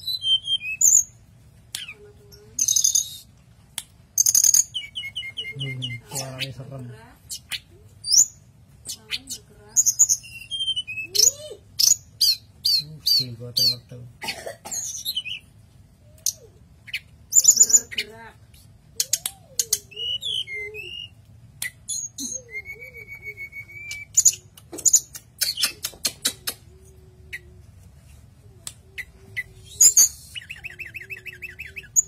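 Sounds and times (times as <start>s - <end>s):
bird singing: 2.6s - 3.3s, 4.2s - 15.5s, 19.0s - 26.0s, 28.5s - 32.0s.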